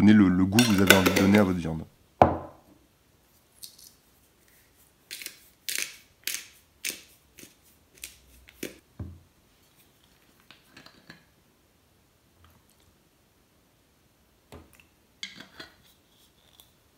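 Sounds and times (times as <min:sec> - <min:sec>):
pepper grinder cracking peppercorns: 0:00.6 - 0:01.5, 0:05.1 - 0:08.8.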